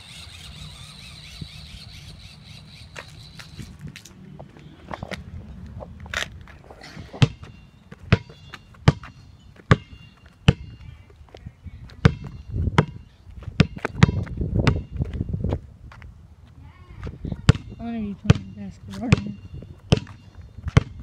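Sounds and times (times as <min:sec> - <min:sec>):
basketball bouncing on concrete: 0:07.1 - 0:15.2, 0:17.0 - 0:21.0.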